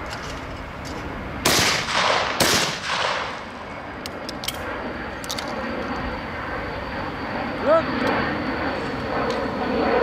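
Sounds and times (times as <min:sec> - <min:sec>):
gunshots with echoing tail: 0:01.4 - 0:03.5.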